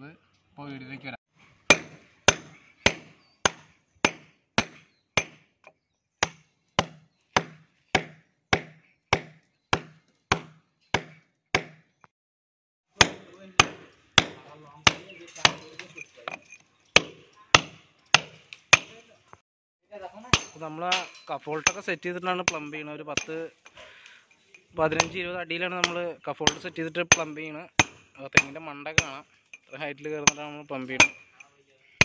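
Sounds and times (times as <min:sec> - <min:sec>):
hammer striking chisel into wall: 0:01.7 - 0:05.5, 0:06.2 - 0:11.9, 0:13.0 - 0:15.7, 0:17.0 - 0:19.0.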